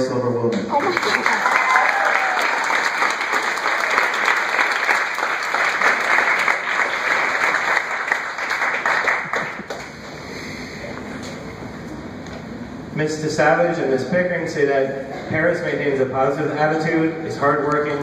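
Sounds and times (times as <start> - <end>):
audience applauding: 0.5 - 10.2.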